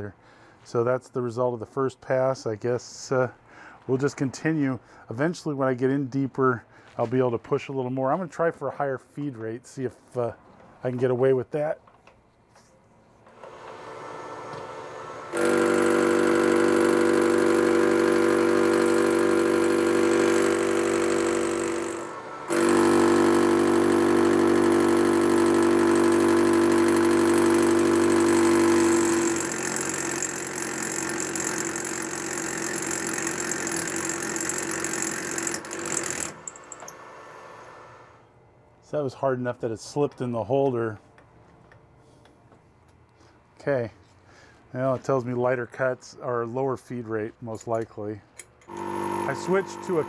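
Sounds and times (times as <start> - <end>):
metal lathe cutting steel: 13.8 - 36.9, 48.7 - 50.0.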